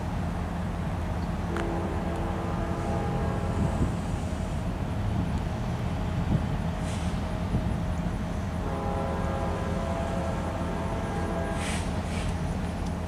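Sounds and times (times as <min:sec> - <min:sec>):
steady low rumble: 0:00.0 - 0:13.0
distant train horn: 0:01.5 - 0:04.5, 0:08.5 - 0:12.4.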